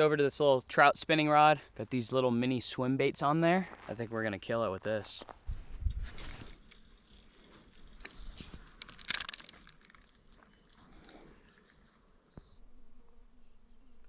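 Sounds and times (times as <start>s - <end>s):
fishing reel clicks and rustles: 6.2s - 11.0s
flying insect buzzing: 6.4s - 14.0s.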